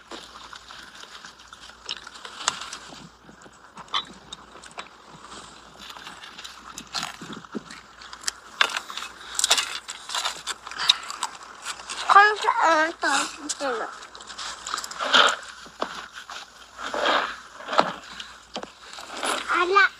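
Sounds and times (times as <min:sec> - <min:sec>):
soft rustling: 0:00.0 - 0:19.9.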